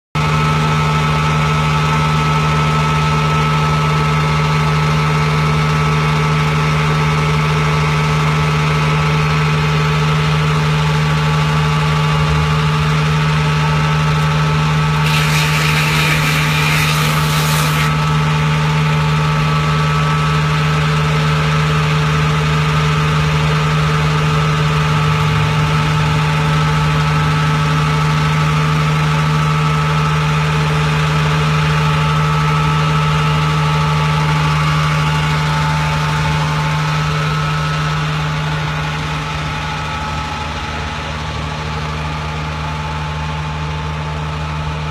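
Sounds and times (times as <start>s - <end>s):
burst of hiss: 15.1s - 17.9s.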